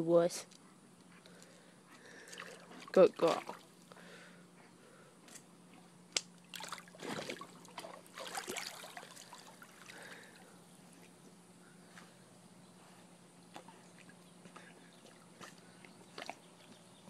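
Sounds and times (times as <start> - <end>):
water lapping: 2.0 - 4.2, 6.4 - 11.2
dog splashing in water: 2.3 - 3.8, 6.5 - 9.9.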